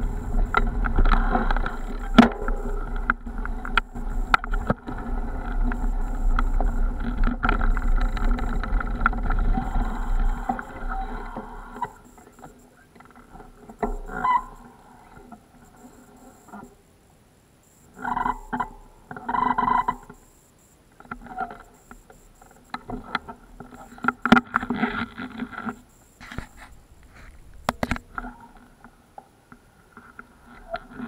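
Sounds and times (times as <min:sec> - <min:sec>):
bicycle rumbling over rough ground: 0:00.0 - 0:11.7.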